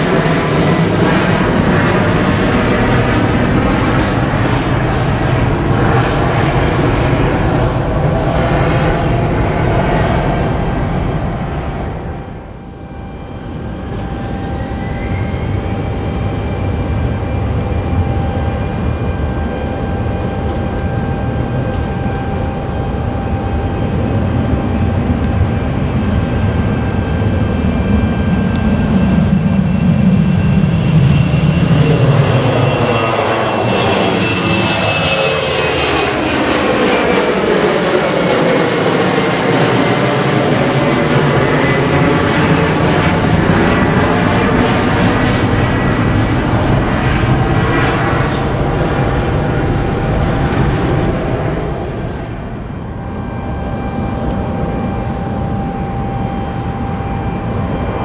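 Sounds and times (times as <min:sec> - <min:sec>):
jet engines whining: 0:00.0 - 0:58.0.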